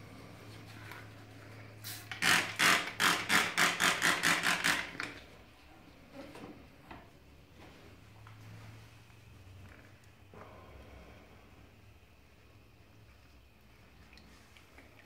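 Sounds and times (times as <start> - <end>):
spray bottle hissing sprays: 1.8 - 3.0.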